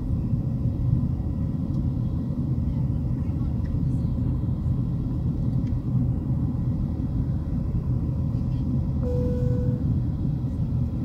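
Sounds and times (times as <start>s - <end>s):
airplane cabin engine roar: 0.0s - 11.0s
short steady tone: 9.0s - 9.9s.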